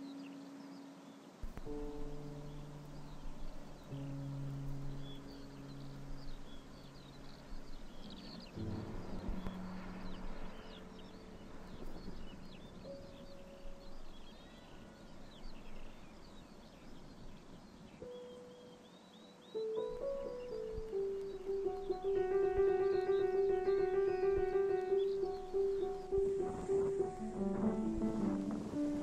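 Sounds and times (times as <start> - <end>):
birds chirping: 0.0 - 29.0
steady background hiss: 0.0 - 29.0
long low held tones: 19.6 - 29.0.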